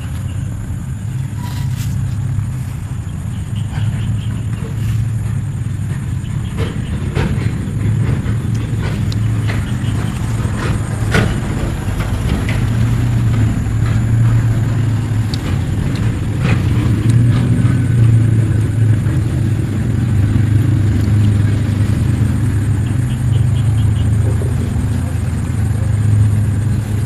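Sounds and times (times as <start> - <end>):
low engine drone: 0.0 - 27.0.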